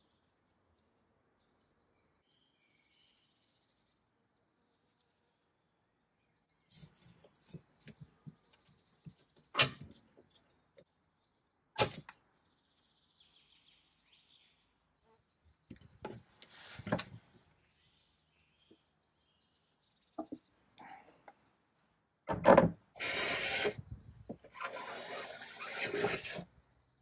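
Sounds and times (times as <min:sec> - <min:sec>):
birds chirping: 0:00.0 - 0:27.0
paint scraper scraping wood: 0:23.0 - 0:23.8, 0:24.5 - 0:26.5.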